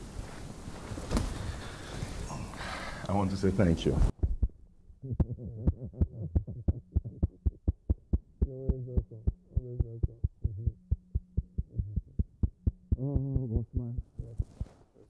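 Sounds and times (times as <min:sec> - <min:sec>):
low steady hum: 0:00.0 - 0:15.0
hands patting a back: 0:01.1 - 0:01.5, 0:14.2 - 0:14.9
man making wavering sounds: 0:05.0 - 0:14.5.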